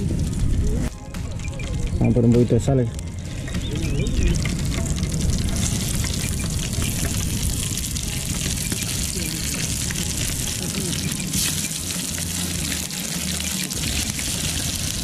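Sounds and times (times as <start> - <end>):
low rumble: 2.9 - 11.2
fish frying in hot oil: 3.2 - 15.0.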